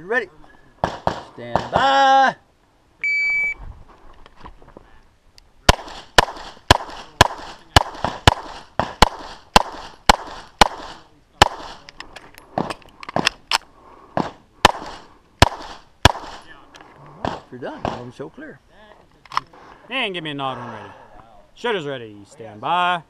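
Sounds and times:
pistol shots: 0.8s - 1.8s, 5.7s - 11.8s, 14.2s - 16.5s.

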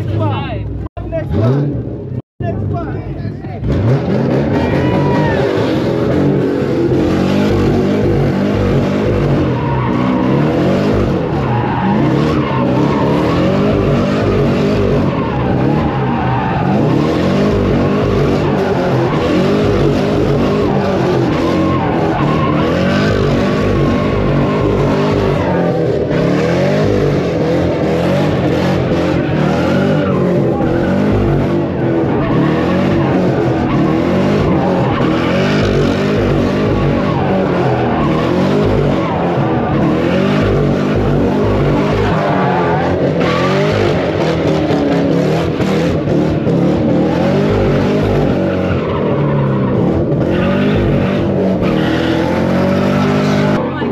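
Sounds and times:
car engine revving: 0.0s - 53.9s
tyres squealing: 4.5s - 44.7s.

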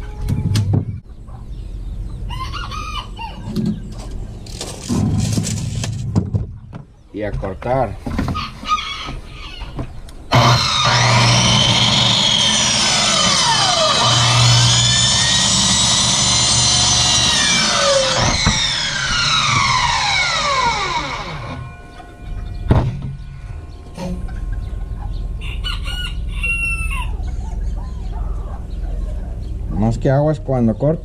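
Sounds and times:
rooster crowing: 2.3s - 3.5s, 8.4s - 9.7s, 25.4s - 27.2s
miter saw cutting pipe: 10.3s - 22.0s.

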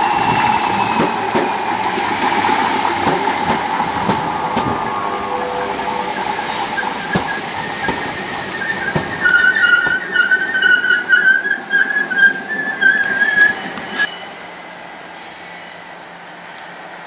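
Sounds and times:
train wheels squealing: 0.0s - 3.1s, 5.1s - 14.4s, 15.2s - 16.0s
electric train pulling out: 0.0s - 14.5s.

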